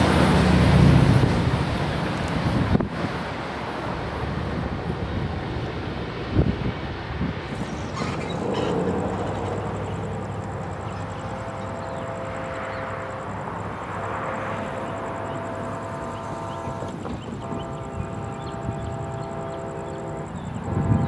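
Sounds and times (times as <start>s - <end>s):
distant train rumble: 0.0s - 21.0s
faint train horn chord: 11.2s - 13.4s, 14.5s - 21.0s.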